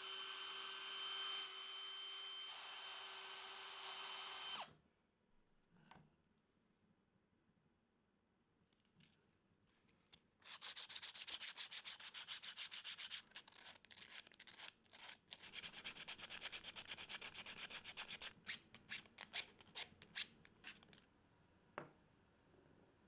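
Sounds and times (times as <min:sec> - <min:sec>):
sandpaper rasping on plastic: 0:10.4 - 0:19.0.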